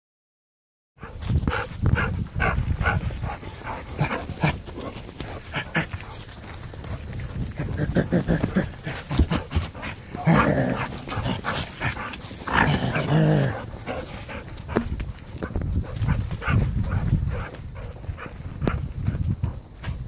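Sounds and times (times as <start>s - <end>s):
footsteps and paws in leaves: 1.1s - 8.1s
dog vocalising: 7.7s - 14.4s.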